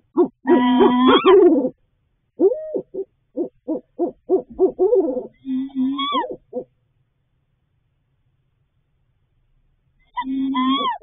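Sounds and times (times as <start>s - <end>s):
owl calling: 0.1s - 1.8s, 2.4s - 6.7s, 10.1s - 11.0s.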